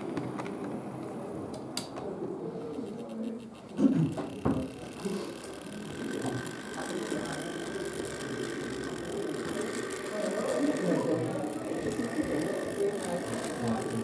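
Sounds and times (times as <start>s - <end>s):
chatter of many voices: 0.0s - 14.0s
faint mechanical whir: 0.0s - 14.0s.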